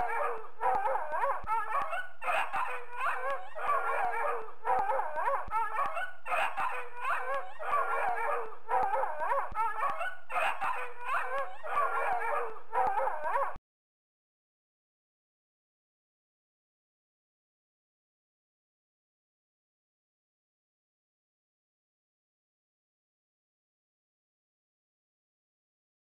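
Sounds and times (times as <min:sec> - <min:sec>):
dog barking: 0:00.0 - 0:13.6.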